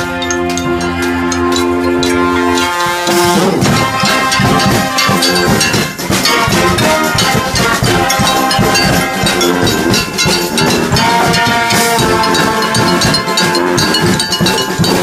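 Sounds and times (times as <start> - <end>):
bass drum: 0.0 - 15.0
brass band playing: 0.0 - 15.0
ringing metallic saw blade notes: 0.0 - 15.0.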